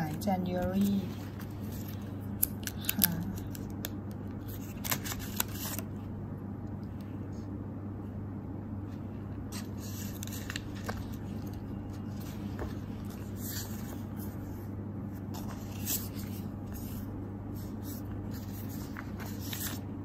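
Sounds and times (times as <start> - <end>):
plastic and paper sheets rustling: 0.0 - 3.8, 4.4 - 5.9, 9.5 - 14.6, 15.2 - 20.0
steady low hum: 0.0 - 20.0.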